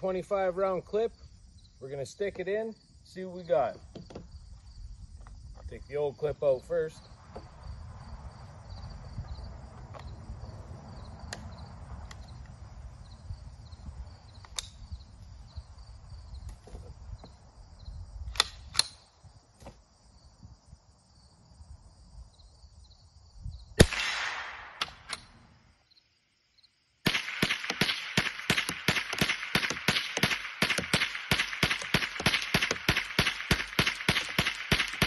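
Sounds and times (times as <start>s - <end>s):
insects chirping: 0.0s - 35.0s
metal clicks of rifle handling: 18.4s - 19.0s
rifle gunshots: 23.8s - 25.1s, 27.0s - 35.0s.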